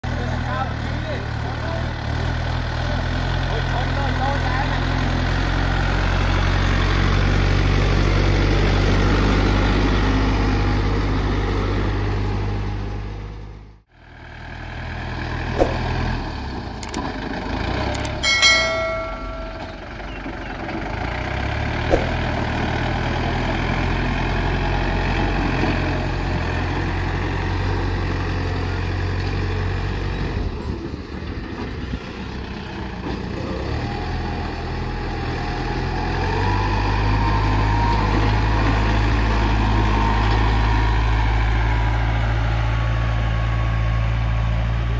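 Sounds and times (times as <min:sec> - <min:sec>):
diesel tractor engine running: 0:00.0 - 0:44.9
single clicks: 0:15.6 - 0:15.9, 0:16.8 - 0:17.1, 0:18.0 - 0:18.2, 0:21.9 - 0:22.2
short bell-like chime: 0:18.2 - 0:20.1.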